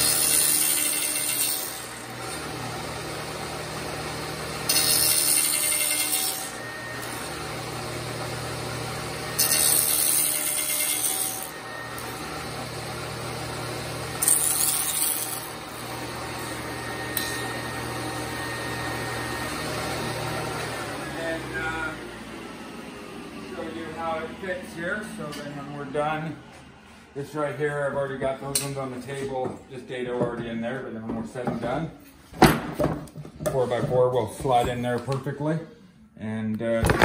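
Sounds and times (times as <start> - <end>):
table saw cutting wood: 0.0 - 29.2.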